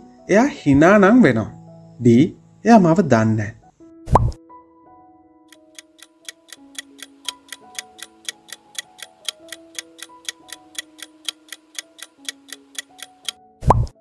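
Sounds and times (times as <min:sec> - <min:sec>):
soft background music: 0:00.0 - 0:14.0
clock ticking countdown: 0:05.5 - 0:13.4.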